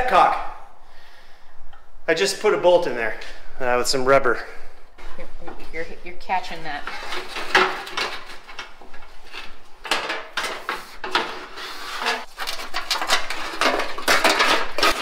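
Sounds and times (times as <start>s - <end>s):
metal scraping: 5.0s - 15.0s
metal clanks and knocks: 12.1s - 15.0s.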